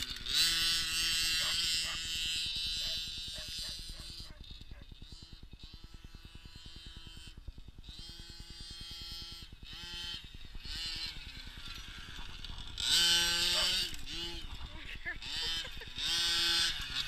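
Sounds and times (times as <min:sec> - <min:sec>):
model truck engine revving: 0:00.0 - 0:17.0.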